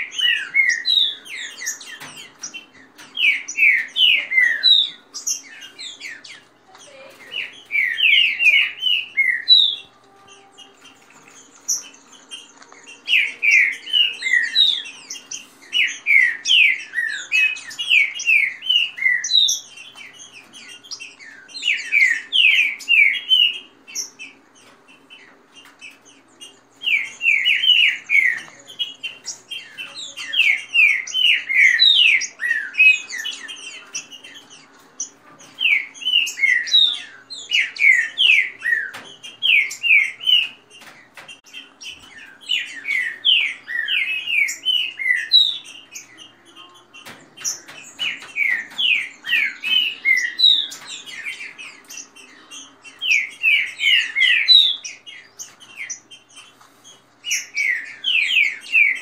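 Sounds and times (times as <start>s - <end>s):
birds singing whistled notes: 0.0s - 59.0s.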